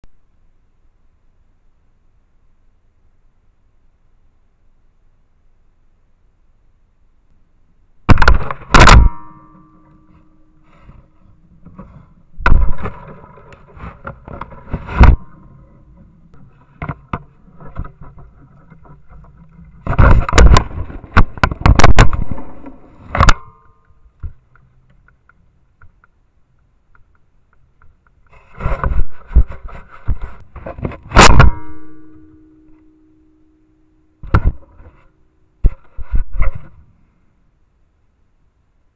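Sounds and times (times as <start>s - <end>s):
knocks and scrapes on camera: 10.0s - 23.5s, 26.9s - 31.6s, 34.2s - 36.9s.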